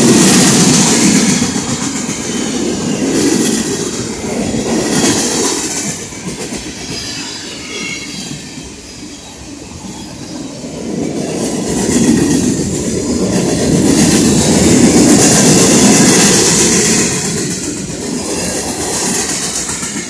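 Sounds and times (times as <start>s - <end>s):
freight train wheels rumbling: 0.0s - 20.0s.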